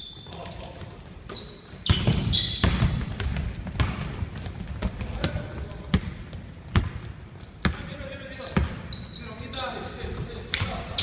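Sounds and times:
sneaker squeaks: 0.0 - 4.1, 6.7 - 11.0
basketball bouncing on wooden floor: 1.8 - 7.9.

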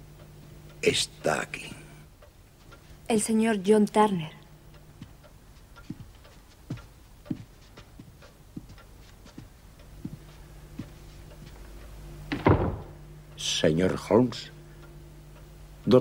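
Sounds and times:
low steady hum: 0.0 - 16.0
footsteps on wooden floor: 5.0 - 12.9.

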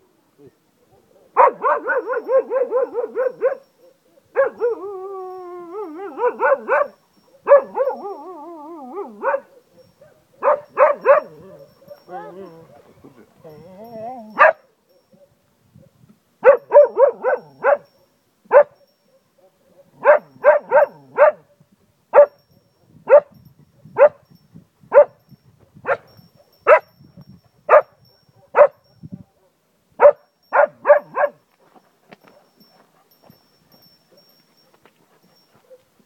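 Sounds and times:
dog barking: 0.8 - 4.8, 6.0 - 8.1, 8.9 - 12.8, 14.4 - 15.4, 16.4 - 17.9, 18.5 - 21.4, 22.2 - 22.4, 23.1 - 23.3, 24.0 - 24.2, 24.9 - 25.2, 25.9 - 26.1, 26.7 - 26.9, 27.7 - 31.4.

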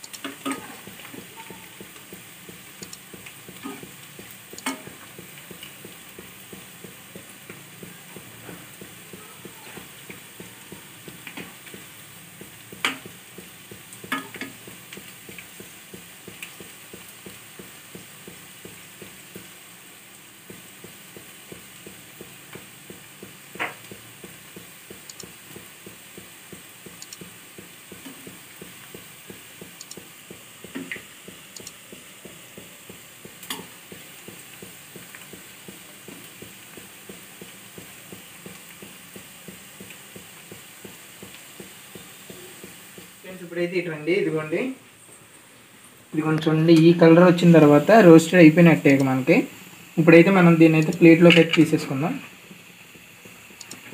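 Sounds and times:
fritters sizzling in hot oil: 0.0 - 53.9
metal spoon clicking on pan: 4.6 - 4.9, 14.1 - 14.6, 33.4 - 33.7.

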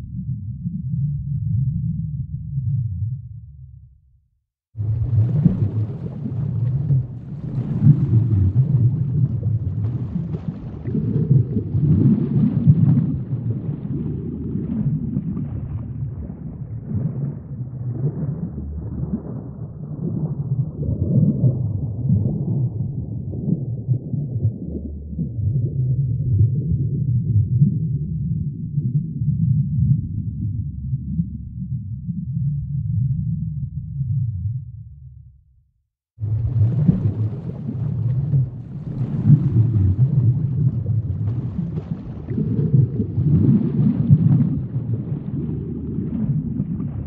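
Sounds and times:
burbling water: 4.8 - 27.0, 36.2 - 47.0.

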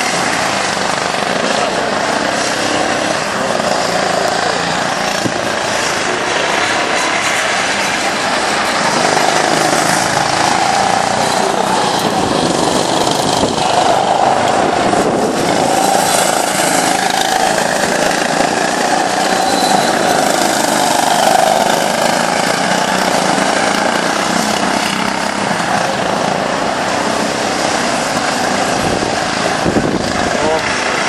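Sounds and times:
go-kart engines buzzing: 0.0 - 31.0.

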